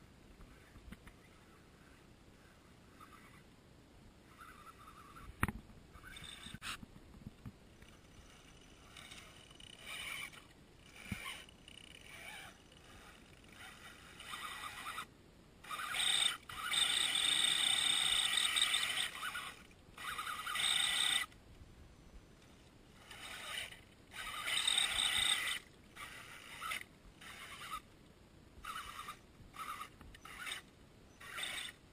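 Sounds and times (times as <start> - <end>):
electric motor and gears whining: 7.8 - 21.4, 22.4 - 27.9, 28.6 - 31.8.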